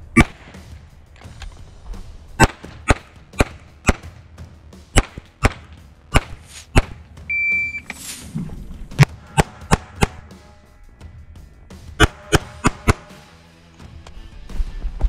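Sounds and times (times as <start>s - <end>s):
pistol shots: 0.1s - 0.7s, 2.4s - 4.2s, 4.9s - 7.0s, 12.0s - 13.1s
shot timer beep: 7.3s - 7.9s.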